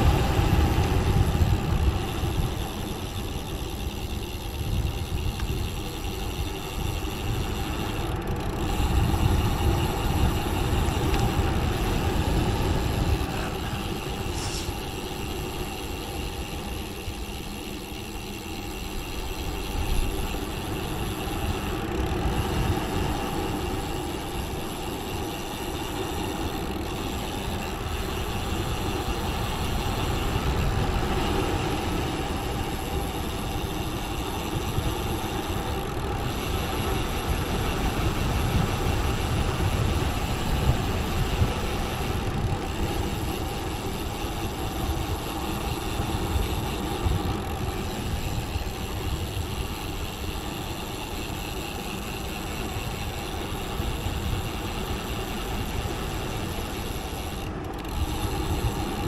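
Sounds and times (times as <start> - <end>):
wind rushing over microphone: 0.0 - 3.6, 27.4 - 50.1
bike tyres rolling on tarmac: 0.0 - 59.0.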